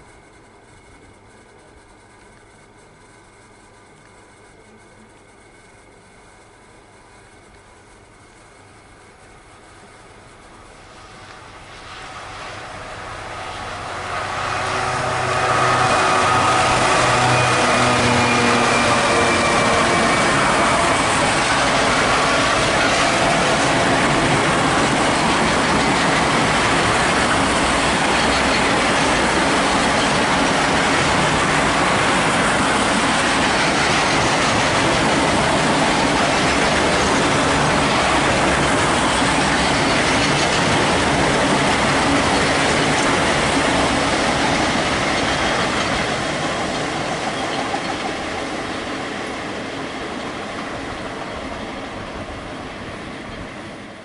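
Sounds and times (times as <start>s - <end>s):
diesel locomotive engine: 0.0s - 54.0s
freight wagons rolling on rails: 9.8s - 52.4s.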